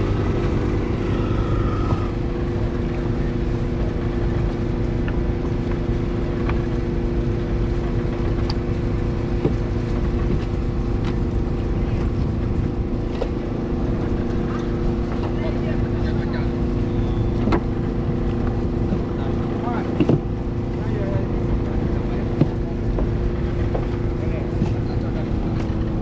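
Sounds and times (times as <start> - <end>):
small engine running: 0.0 - 4.3.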